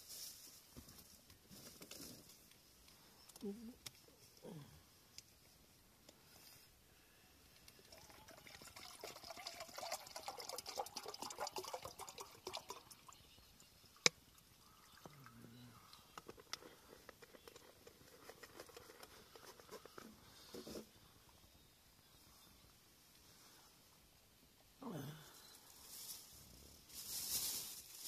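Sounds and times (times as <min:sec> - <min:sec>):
water pouring into metal pot: 0:07.8 - 0:13.3
faint crackles: 0:25.2 - 0:28.0.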